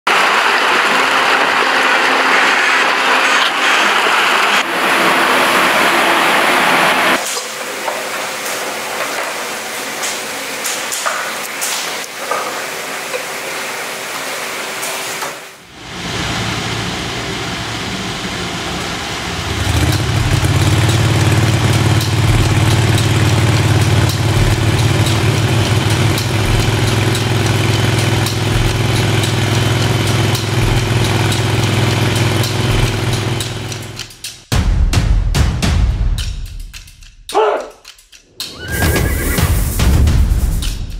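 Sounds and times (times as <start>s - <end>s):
small engine running: 0.1s - 7.2s, 15.8s - 34.2s
steady machine hum: 0.1s - 7.8s, 15.6s - 34.2s.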